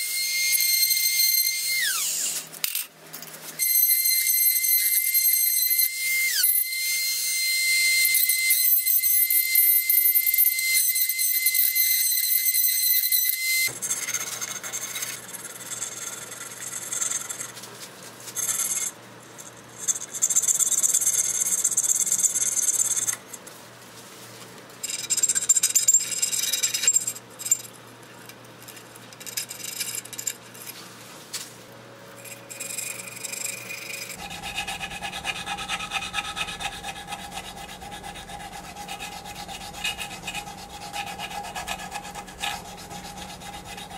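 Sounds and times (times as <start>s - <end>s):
tool rubbing turning bowl: 3.6s - 17.6s, 32.2s - 43.9s
high whine: 32.2s - 43.9s
cutting tool shaving wood: 34.0s - 43.9s
lathe motor low hum: 34.1s - 43.9s.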